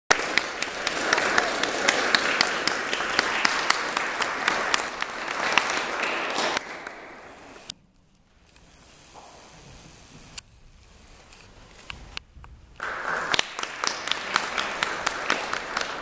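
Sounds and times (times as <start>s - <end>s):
audience applauding: 0.1s - 7.7s, 12.8s - 16.0s.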